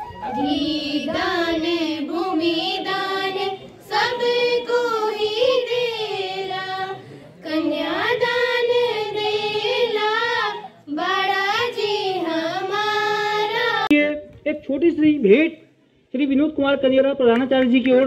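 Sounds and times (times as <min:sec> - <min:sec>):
girls singing folk song: 0:00.3 - 0:13.9.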